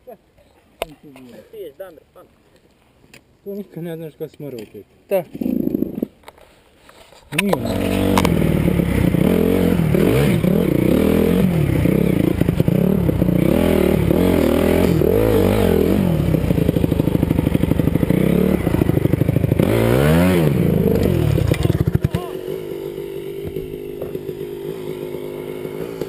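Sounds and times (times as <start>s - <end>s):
dirt bike engine revving: 7.5s - 26.0s.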